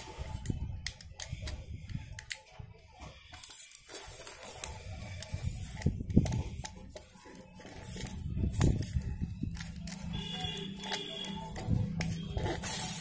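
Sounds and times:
tape blade scraping plastic: 3.2 - 13.0.

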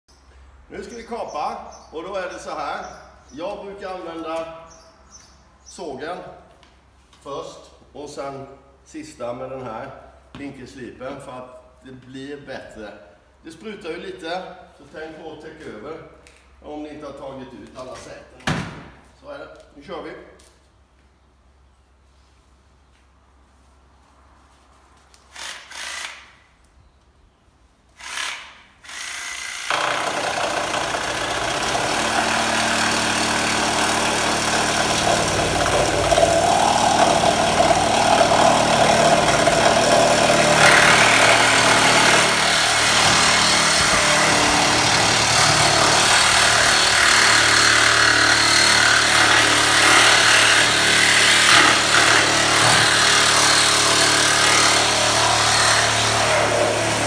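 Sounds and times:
reciprocating saw cutting steel: 28.0 - 57.0.

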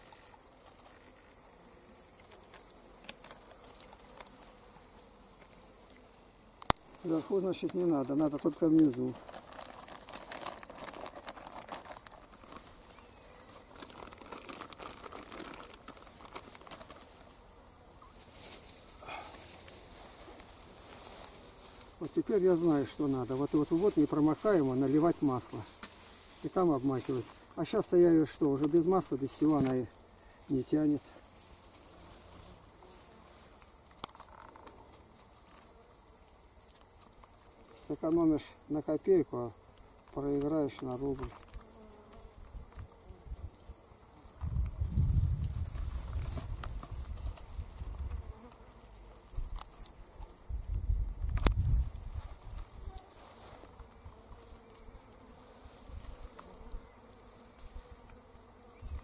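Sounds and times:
insects buzzing: 0.0 - 59.0
wind rumble on microphone: 44.4 - 48.3, 50.5 - 52.9.

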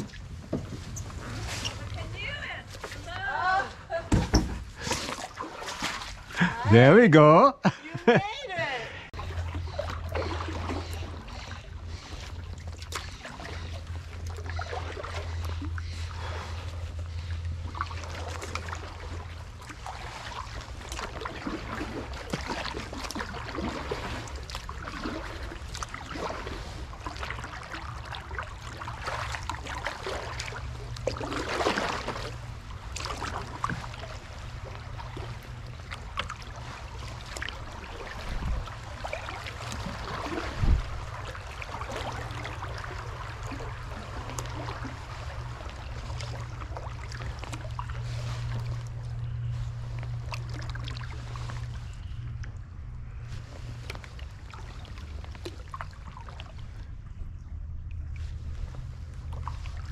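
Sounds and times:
splashing and dripping water: 0.0 - 6.6, 9.1 - 57.0, 57.7 - 59.9
paddle stroke swish: 4.8 - 6.3.

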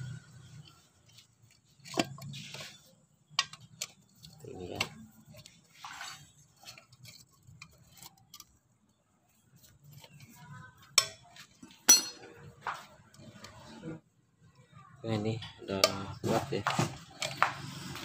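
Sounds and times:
wrench clinking on metal parts: 11.8 - 12.4.

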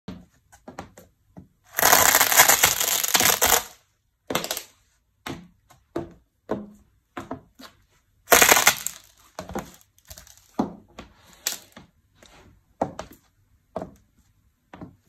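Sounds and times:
noodles crunching underfoot: 1.8 - 3.7, 8.3 - 9.2.

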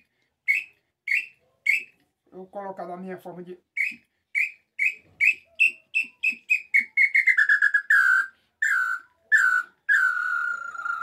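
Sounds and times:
whistled bird call: 0.5 - 1.9, 3.8 - 11.0.

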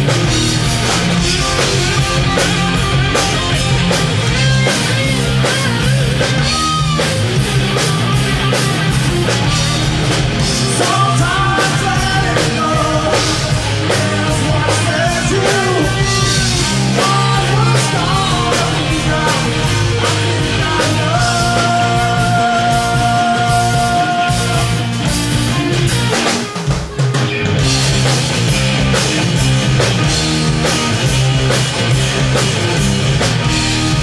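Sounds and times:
rock band playing: 0.0 - 34.0
lead singer singing: 10.4 - 25.2.

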